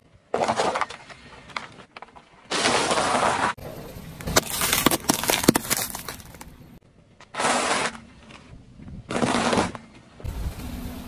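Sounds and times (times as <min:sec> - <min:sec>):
tyre crushing objects: 0:04.2 - 0:06.6.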